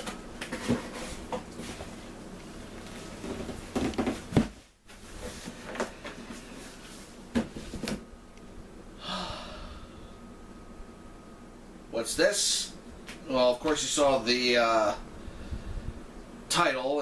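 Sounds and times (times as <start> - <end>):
short breath: 9.0 - 10.2.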